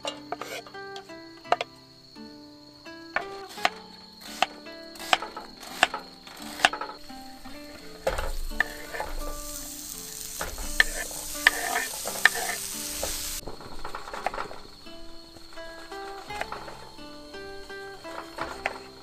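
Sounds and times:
utensil clicking against pan: 3.2 - 14.7
food sizzling in a pan: 4.2 - 19.0.

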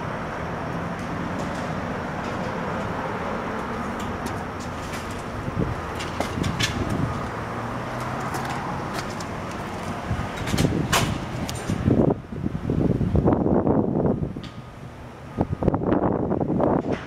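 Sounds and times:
van door clunking open: 8.0 - 12.0.

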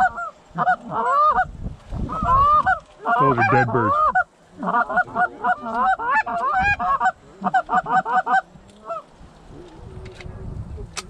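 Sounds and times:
goose honking: 0.0 - 1.5, 2.1 - 9.1.

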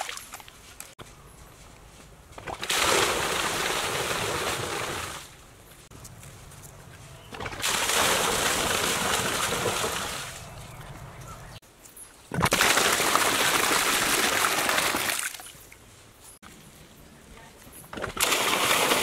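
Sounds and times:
water gushing into pool: 2.6 - 5.2, 7.6 - 10.4, 12.4 - 15.4, 18.2 - 19.0.

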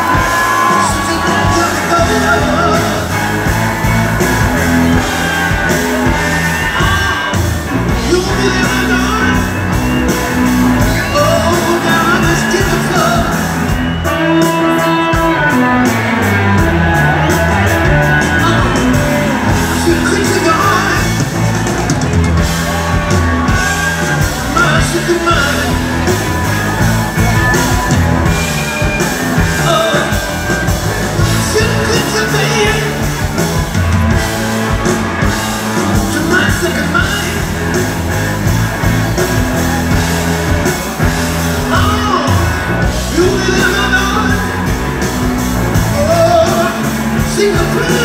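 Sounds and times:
live rock band: 0.0 - 48.0
man singing and wailing: 0.5 - 3.1.

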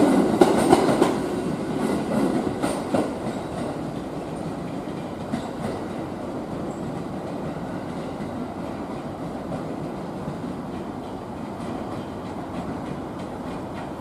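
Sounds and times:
train rolling rumble: 0.0 - 14.0
train wheels clacking over rail joints: 0.0 - 14.0.

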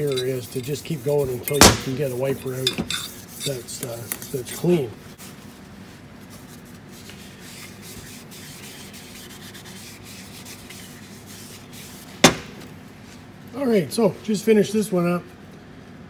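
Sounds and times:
cloth scrubbing on metal: 0.0 - 4.9, 6.8 - 12.6
sharp knock: 12.2 - 12.6.

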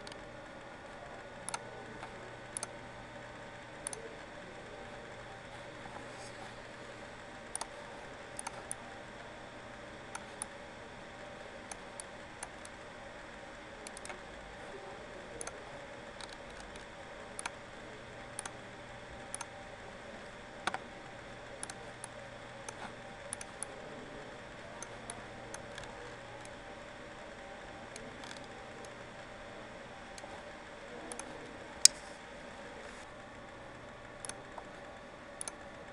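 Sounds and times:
computer mouse clicks: 0.0 - 0.2, 1.4 - 2.8, 3.8 - 4.1, 7.5 - 7.7, 8.3 - 8.8, 13.8 - 14.2, 15.4 - 15.6, 16.2 - 17.6, 18.4 - 18.6, 19.2 - 19.6, 20.6 - 20.8, 21.6 - 23.8, 27.8 - 29.0, 30.0 - 32.2, 34.0 - 34.8, 35.4 - 35.8
steady background hum: 0.0 - 35.9.

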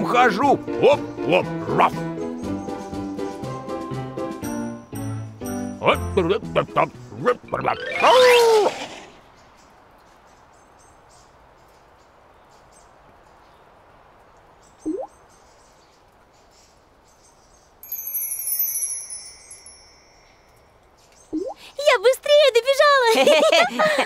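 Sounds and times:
faint birds twittering: 0.0 - 24.0
water-drop plink: 14.8 - 15.1
sparkling chime shimmer: 17.8 - 20.9.

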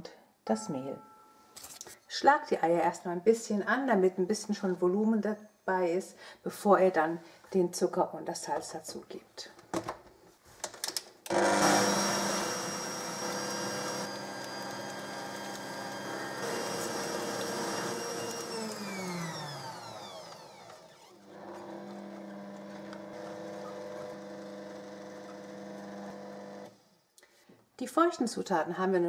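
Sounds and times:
motor winding down whine: 11.3 - 26.7
stand mixer whisking: 11.3 - 26.7.

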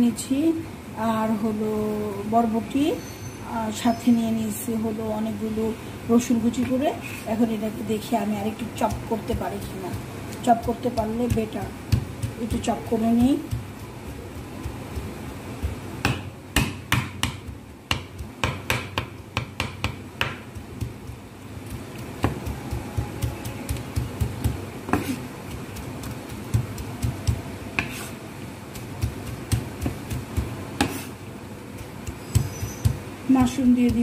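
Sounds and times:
knife chopping on wooden board: 10.4 - 21.1, 21.7 - 28.1, 28.7 - 31.1, 31.8 - 34.0.

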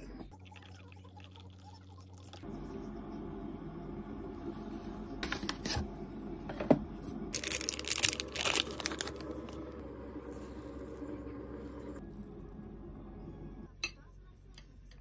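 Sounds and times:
foil seal peeling and crinkling: 7.4 - 9.5.

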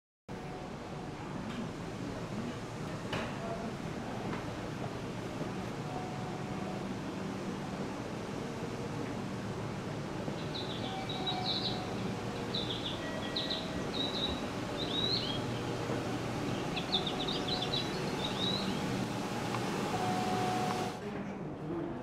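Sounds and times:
electric train hum: 0.3 - 21.0
bird chirps from a speaker: 10.6 - 11.9.

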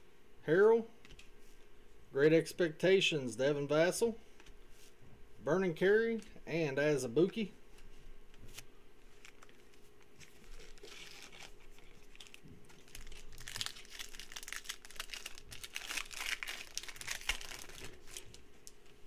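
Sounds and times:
foil wrapper crinkling and tearing: 9.1 - 18.9.

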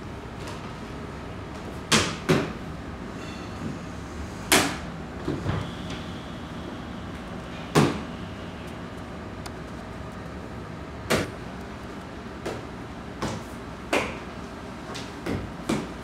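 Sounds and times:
steady room hum: 0.0 - 16.0.

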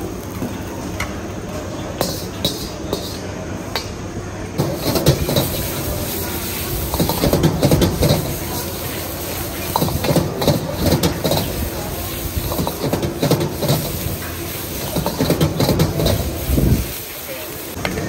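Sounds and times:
gas burner rumble: 0.0 - 18.0
ladle scraping wok: 2.0 - 3.3, 4.6 - 17.7
noodles sizzling: 4.6 - 18.0.

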